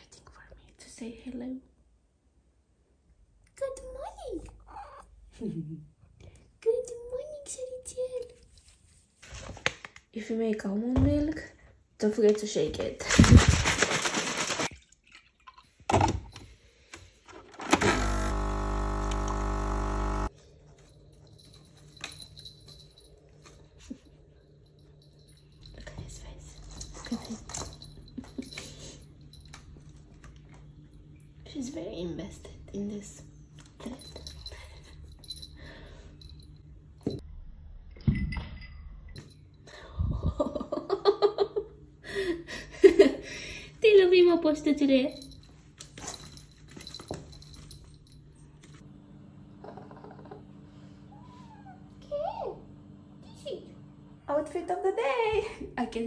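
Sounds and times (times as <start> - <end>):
plastic bottle shaken: 12.9 - 14.8
coffee machine pump buzzing: 17.7 - 20.3, 48.8 - 54.3
person's voice: 53.2 - 56.0.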